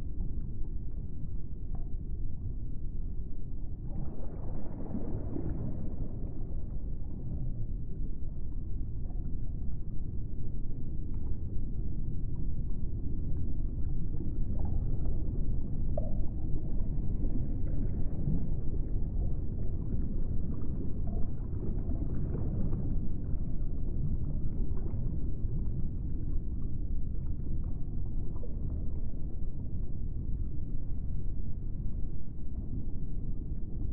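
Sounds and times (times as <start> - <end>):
low rumbling ambient drone: 0.0 - 33.9.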